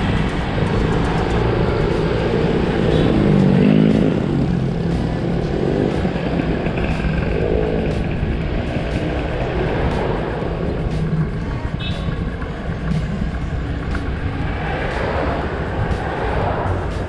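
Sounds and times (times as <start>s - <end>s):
motorcycle engine running: 0.0s - 17.0s
road noise: 0.0s - 17.0s.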